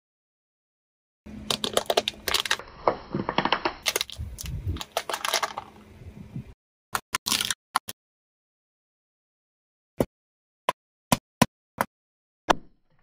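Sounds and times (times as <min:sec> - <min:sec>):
objects cracking under car tyre: 0:01.5 - 0:05.8.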